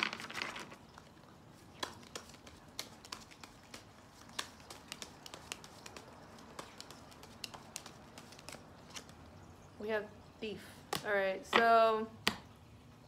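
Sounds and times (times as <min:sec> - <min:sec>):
cards being shuffled: 0:00.0 - 0:09.2.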